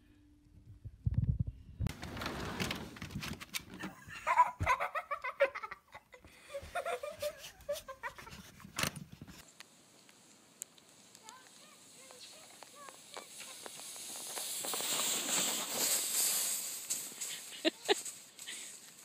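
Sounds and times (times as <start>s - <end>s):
rustling: 1.9s - 4.8s, 6.7s - 19.0s.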